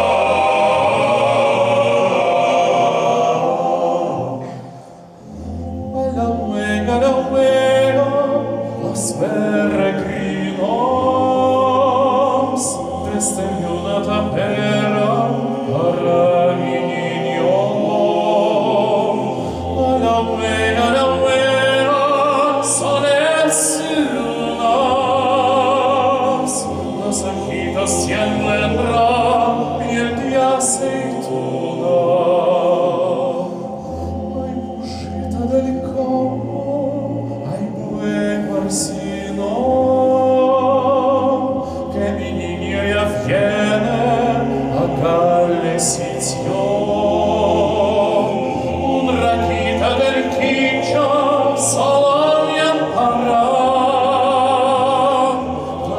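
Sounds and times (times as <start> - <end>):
male soloist singing with vibrato: 5.7 - 55.9.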